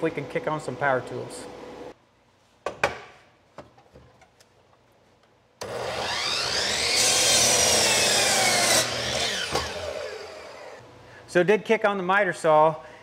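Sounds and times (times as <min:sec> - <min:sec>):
miter saw motor whining: 0:05.6 - 0:10.8
saw blade cutting wood: 0:05.6 - 0:10.8.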